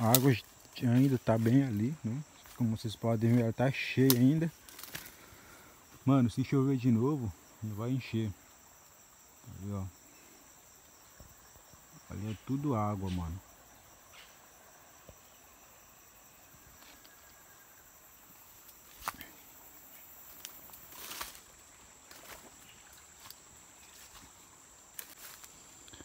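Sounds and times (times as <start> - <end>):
footsteps through undergrowth: 0.0 - 6.1, 18.3 - 25.8
insects droning: 0.0 - 26.0.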